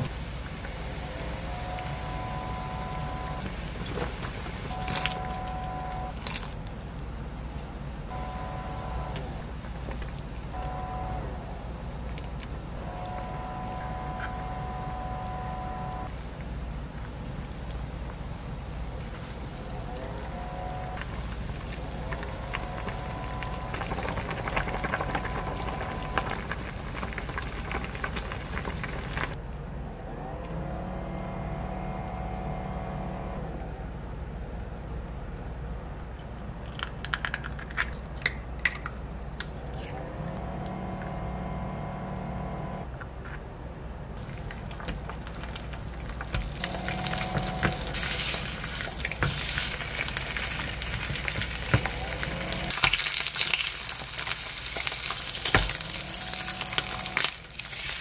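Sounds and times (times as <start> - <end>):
stew bubbling in a pot: 16.2 - 29.4, 44.2 - 58.0
food sizzling in oil: 44.2 - 58.0.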